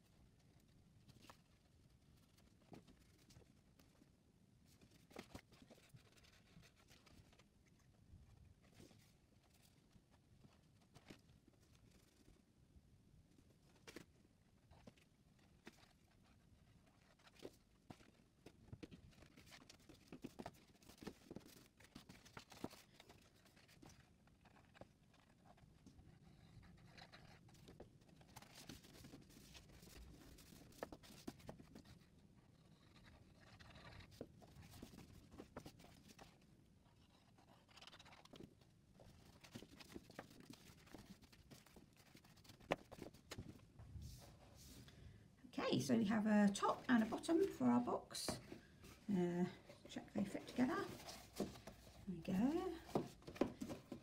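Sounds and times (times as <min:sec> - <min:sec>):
paper rustling: 0:04.7 - 0:07.8, 0:13.6 - 0:45.0, 0:46.5 - 0:54.0
paper box rustling and tapping: 0:27.5 - 0:32.0, 0:37.7 - 0:43.7, 0:49.7 - 0:54.0.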